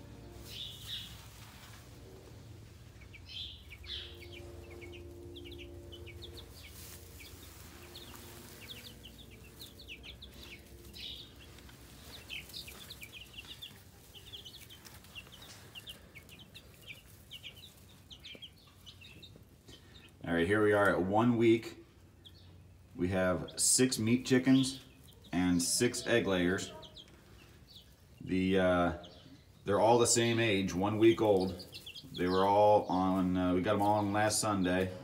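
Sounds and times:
low steady hum: 0:00.0 - 0:21.1
chicks peeping: 0:00.0 - 0:35.0.

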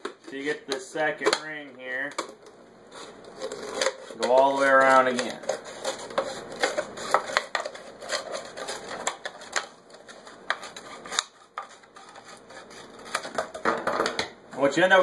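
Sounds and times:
scissors snipping plastic: 0:03.3 - 0:12.2.

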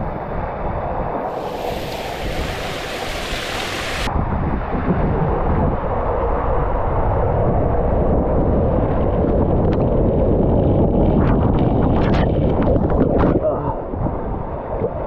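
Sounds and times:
wind buffeting microphone: 0:00.0 - 0:15.0
water rushing: 0:01.2 - 0:04.1.

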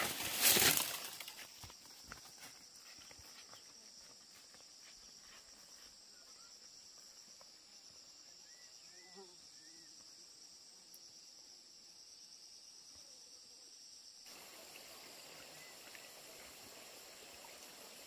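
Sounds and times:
footsteps on dirt path: 0:00.0 - 0:07.7
insects chorus: 0:00.0 - 0:18.0.

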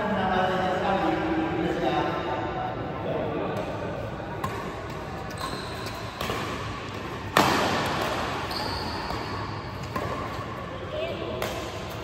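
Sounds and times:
hard echoing racket hit: 0:03.4 - 0:12.0
rackets hitting shuttlecock: 0:03.5 - 0:12.0.

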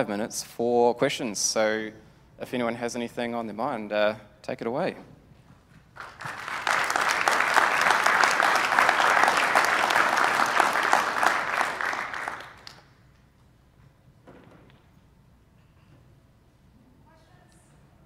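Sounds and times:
audience applauding: 0:06.0 - 0:12.9.

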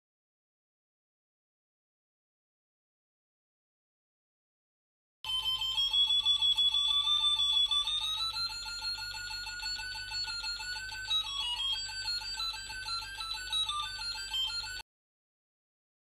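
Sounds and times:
buzzy electronic tone: 0:05.3 - 0:14.8.

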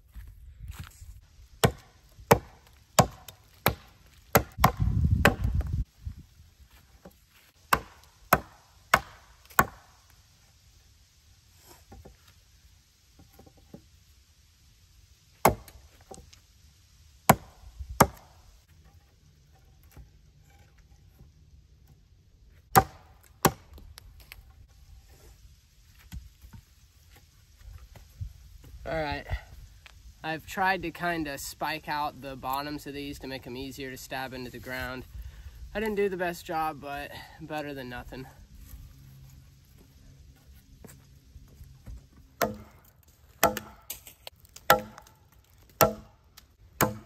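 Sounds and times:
blade chopping wood: 0:01.6 - 0:05.7, 0:07.7 - 0:10.0, 0:15.4 - 0:16.2, 0:17.3 - 0:18.4, 0:22.7 - 0:23.8, 0:42.4 - 0:46.2, 0:46.8 - 0:47.0.

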